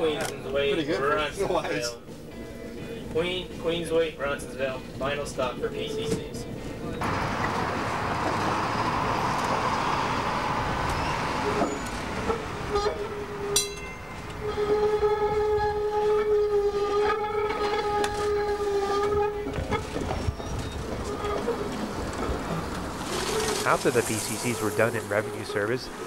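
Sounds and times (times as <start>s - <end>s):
streetcar rolling noise: 2.0s - 26.0s
long steady tone: 12.6s - 19.6s.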